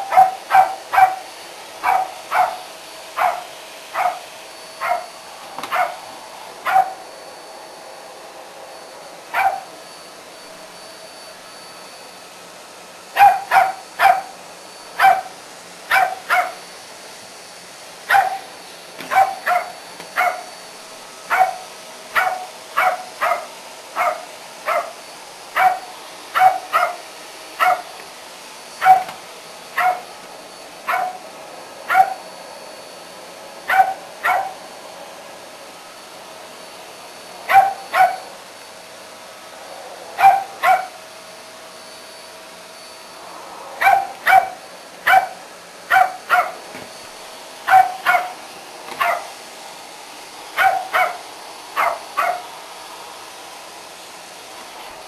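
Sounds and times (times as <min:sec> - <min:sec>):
dog barking: 0:00.0 - 0:04.2, 0:04.8 - 0:05.1, 0:05.7 - 0:06.0, 0:06.6 - 0:07.0, 0:09.3 - 0:09.7, 0:13.2 - 0:14.3, 0:15.0 - 0:15.3, 0:15.9 - 0:16.6, 0:18.1 - 0:20.5, 0:21.3 - 0:25.0, 0:25.6 - 0:27.0, 0:27.6 - 0:27.9, 0:28.8 - 0:29.2, 0:29.8 - 0:30.1, 0:30.9 - 0:31.2, 0:31.9 - 0:32.2, 0:33.7 - 0:34.6, 0:37.5 - 0:38.3, 0:40.2 - 0:41.0, 0:43.8 - 0:46.6, 0:47.7 - 0:48.4, 0:49.0 - 0:49.3, 0:50.6 - 0:51.2, 0:51.8 - 0:52.5.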